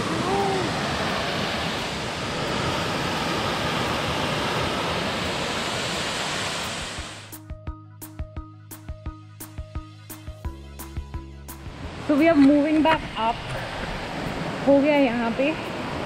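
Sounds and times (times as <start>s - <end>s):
waterfall rushing: 0.0s - 7.3s
background music with steady beat: 7.0s - 12.4s.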